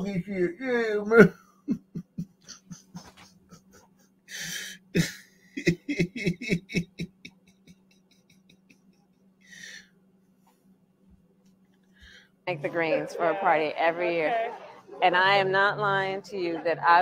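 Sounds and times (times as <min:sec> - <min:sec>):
man chuckling: 0:01.0 - 0:08.9
breathy exhale: 0:09.5 - 0:09.9.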